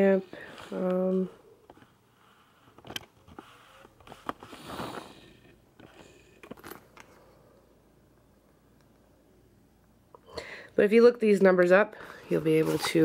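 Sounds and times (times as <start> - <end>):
fabric rustle: 12.2 - 13.0.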